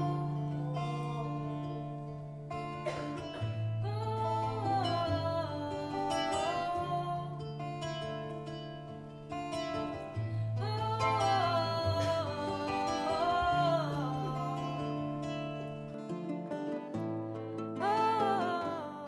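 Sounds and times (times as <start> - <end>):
person singing: 0.0 - 2.1, 3.8 - 8.1, 10.3 - 15.7, 17.8 - 19.0
plucked acoustic guitar: 0.0 - 19.0.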